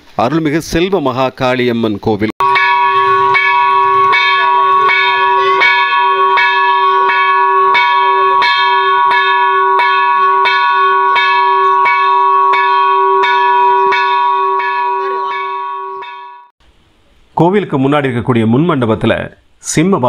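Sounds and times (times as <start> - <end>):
large bell ringing: 2.4 - 16.5.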